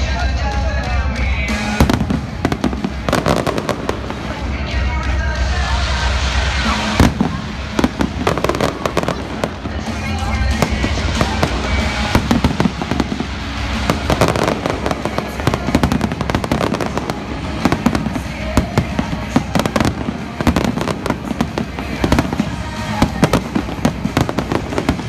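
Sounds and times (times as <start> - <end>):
fireworks bangs and crackles: 0.0 - 25.0.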